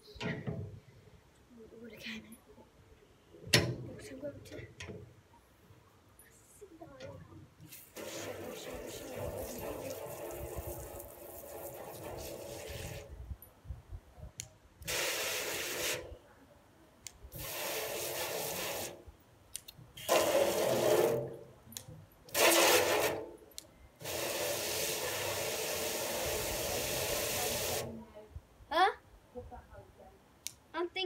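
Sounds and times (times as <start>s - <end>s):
hose nozzle spraying water: 7.7s - 13.1s, 14.8s - 16.1s, 17.3s - 19.0s, 20.0s - 21.4s, 22.3s - 23.3s, 24.0s - 28.0s.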